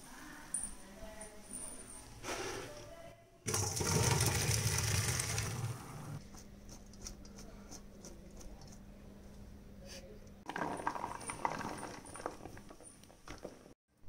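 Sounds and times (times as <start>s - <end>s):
water pouring into colander: 3.5s - 6.2s, 10.5s - 12.6s.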